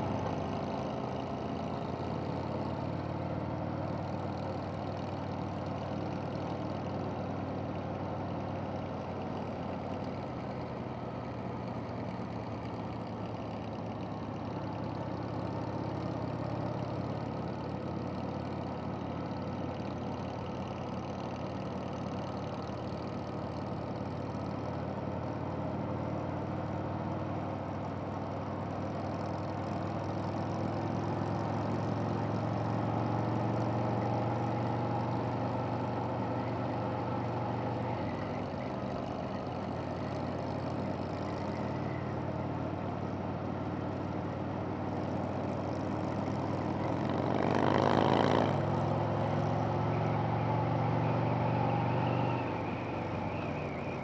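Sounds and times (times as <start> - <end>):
wind and road rush: 30.0 - 54.0.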